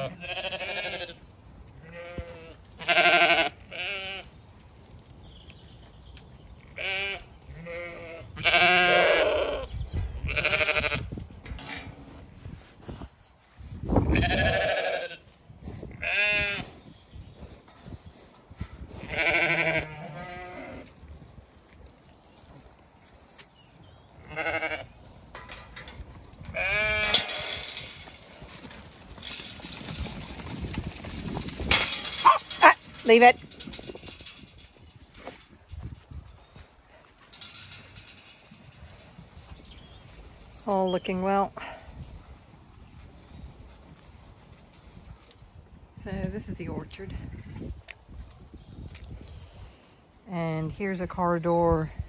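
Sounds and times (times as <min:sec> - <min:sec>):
sheep bleating: 0:00.0 - 0:01.2, 0:01.8 - 0:04.3, 0:06.8 - 0:09.6, 0:19.1 - 0:20.8, 0:24.2 - 0:24.9.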